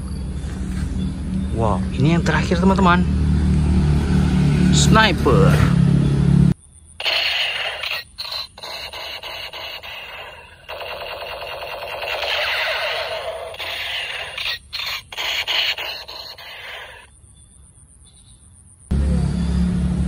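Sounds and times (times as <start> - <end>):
toy gun rapid-fire sound effect: 7.0 - 17.1.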